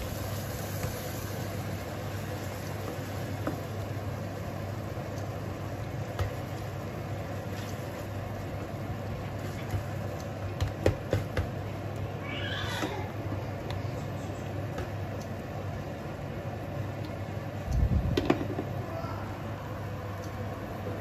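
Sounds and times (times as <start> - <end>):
food sizzling in a frying pan: 0.0 - 14.7.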